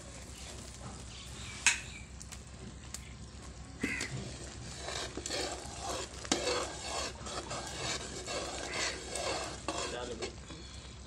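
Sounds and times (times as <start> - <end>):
metal spoon scraping a pan: 3.8 - 10.8.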